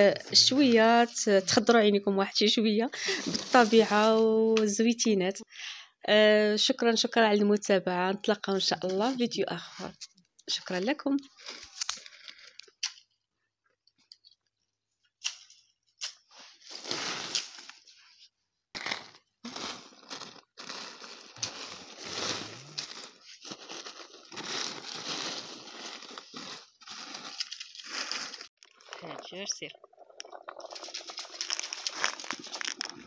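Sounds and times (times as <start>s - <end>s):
hands rustling through olives and leaves: 2.4s - 4.4s, 18.8s - 33.0s.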